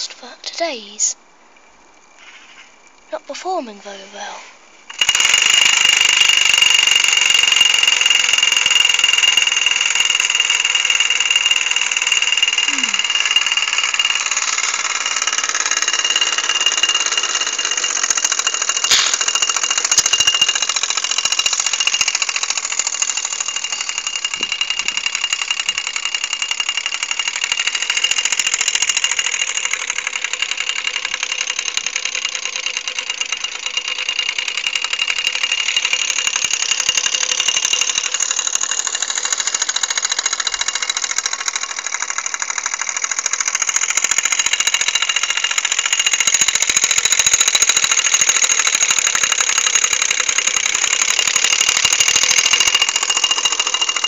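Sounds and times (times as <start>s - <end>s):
toy steam engine chuffing: 2.2s - 54.0s.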